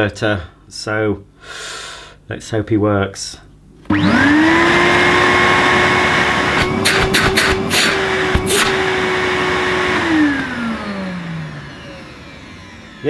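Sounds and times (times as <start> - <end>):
vacuum cleaner motor whining: 3.9 - 13.0
short clicks: 6.6 - 8.8.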